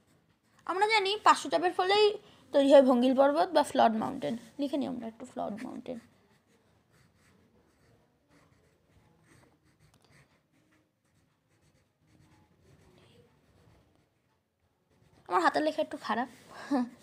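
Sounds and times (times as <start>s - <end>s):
pen scratching on paper: 5.5s - 14.3s.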